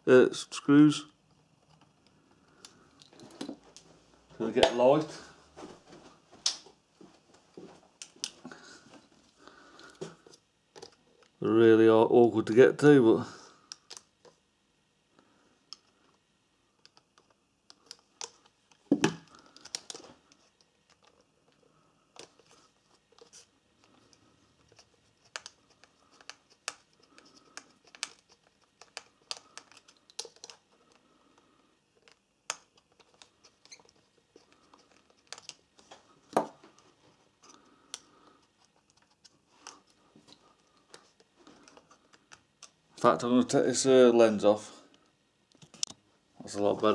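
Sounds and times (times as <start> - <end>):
small clicks and taps on plastic: 23.2 - 31.0.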